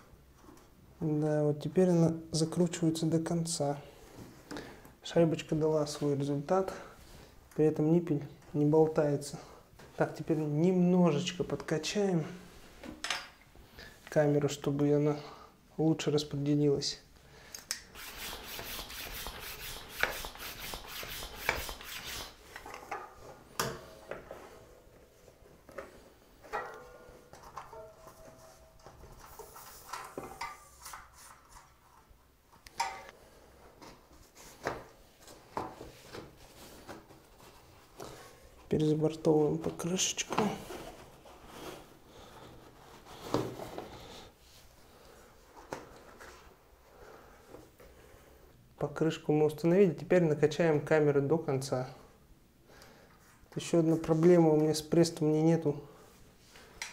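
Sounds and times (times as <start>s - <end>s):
hand pump rasping strokes: 18.0s - 22.4s.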